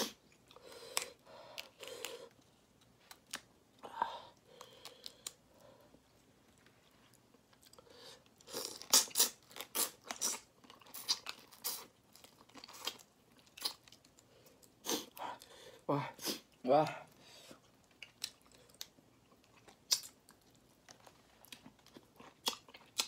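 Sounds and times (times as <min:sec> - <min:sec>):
chewing and crunching: 0:04.4 - 0:14.8, 0:17.6 - 0:23.0.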